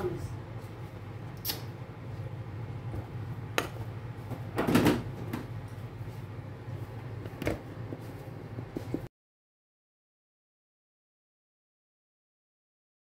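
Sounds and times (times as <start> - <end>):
steady low hum: 0.0 - 9.1.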